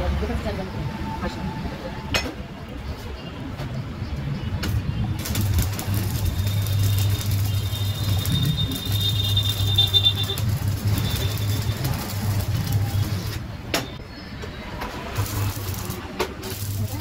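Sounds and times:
welding arc crackling: 4.5s - 14.0s, 14.7s - 17.0s.

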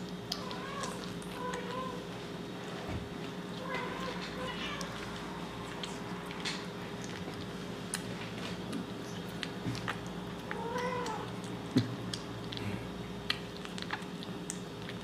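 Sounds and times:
kitten chewing wet food: 0.0s - 15.0s.

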